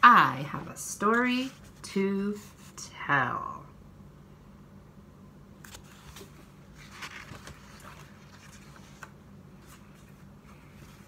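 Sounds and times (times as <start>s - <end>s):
faint low hum: 0.0s - 11.0s
book pages turning: 5.6s - 11.0s.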